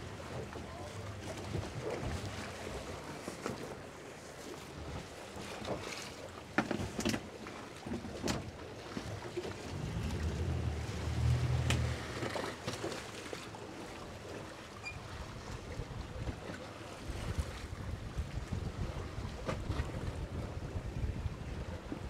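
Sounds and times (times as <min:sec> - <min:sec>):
water slapping boat hull: 0:00.0 - 0:22.0
splashes: 0:08.8 - 0:15.6
low rumble: 0:09.6 - 0:12.2
wind buffeting microphone: 0:17.1 - 0:22.0.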